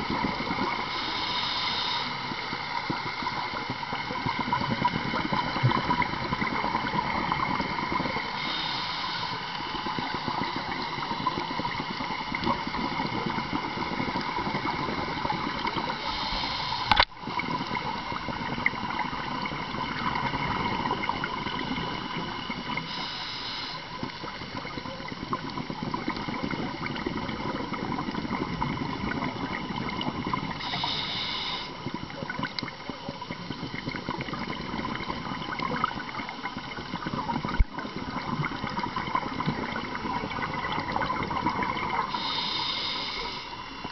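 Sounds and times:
faint hum: 0.0s - 43.9s
underwater crackling hiss: 0.0s - 43.9s
bursts of higher hiss: 0.9s - 2.5s, 8.2s - 10.8s, 15.9s - 17.0s, 22.8s - 24.0s, 30.6s - 31.8s, 42.1s - 43.8s.

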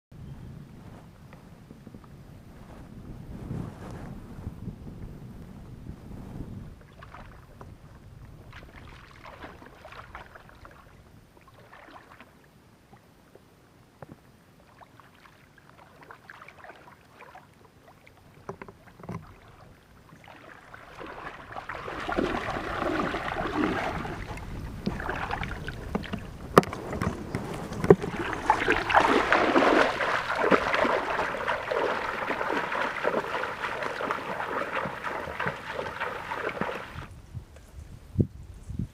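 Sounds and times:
water splashing from wading: 6.9s - 12.5s, 14.6s - 37.1s.

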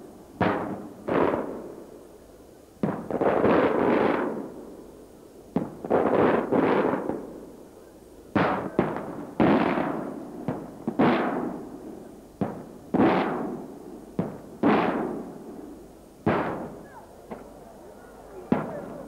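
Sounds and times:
rolling echo: 14.2s - 19.0s
firework shells bursting: 16.2s - 17.6s.

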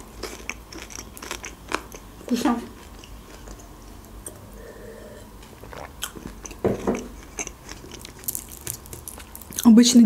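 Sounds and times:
chewing with wet mouth clicks: 0.2s - 2.1s, 5.6s - 9.7s.

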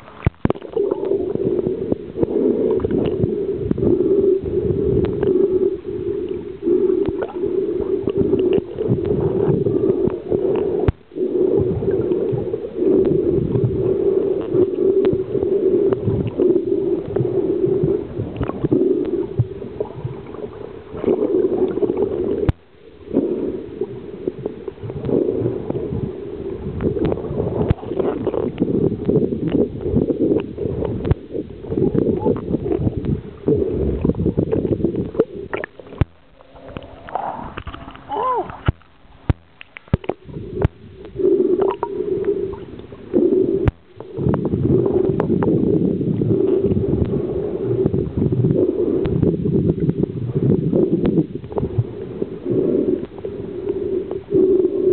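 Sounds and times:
water gurgling and sloshing: 0.0s - 54.9s.

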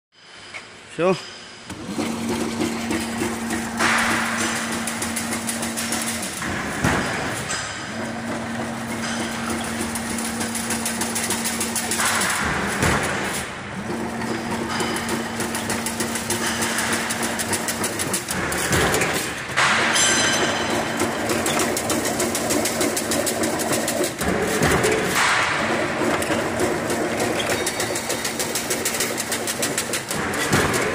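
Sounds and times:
machine hum: 1.7s - 30.9s
fence machine clattering: 13.9s - 30.9s.

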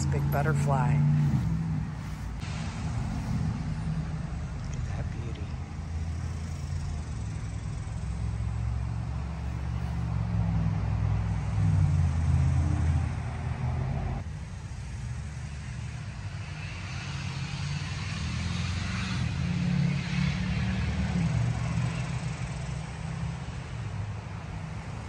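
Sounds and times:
low motor rumble: 0.0s - 14.2s.

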